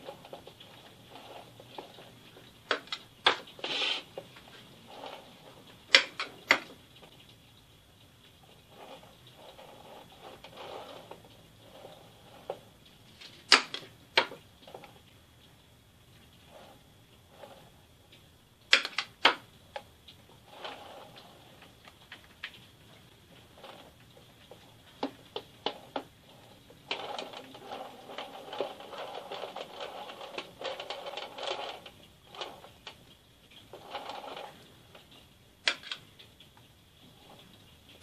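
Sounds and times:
spatula scraping and spreading: 0.0 - 6.1.

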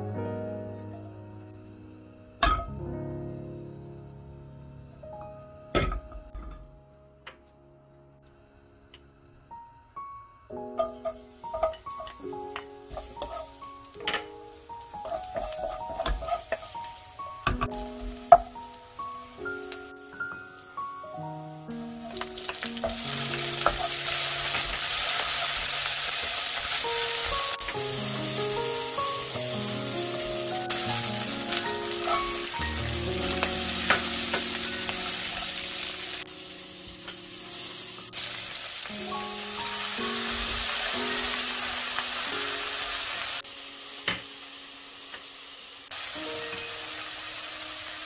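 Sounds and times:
fish sizzling in hot oil: 10.8 - 20.8, 21.7 - 48.0
wooden spatula stirring and scraping: 12.9 - 13.5, 15.0 - 16.8.

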